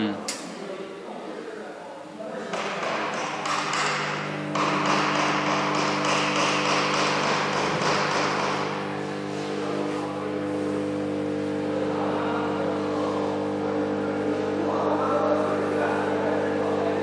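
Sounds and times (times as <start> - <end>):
induction heater humming: 0.0 - 17.0.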